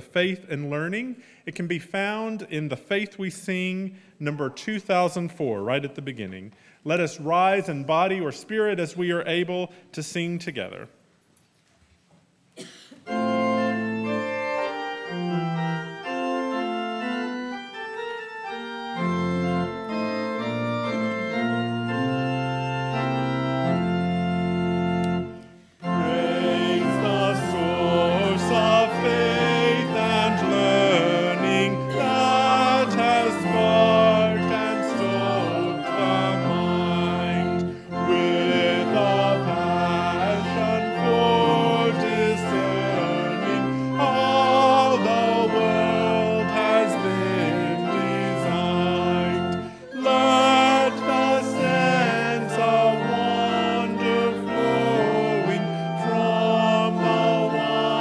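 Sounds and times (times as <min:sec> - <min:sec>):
church organ chords: 0:12.6 - 0:58.0
voices singing a hymn: 0:19.8 - 0:58.0.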